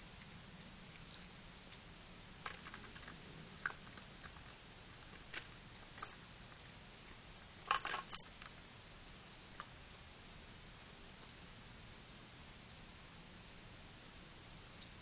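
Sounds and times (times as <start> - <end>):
fox eating from metal bowl: 2.4 - 8.6.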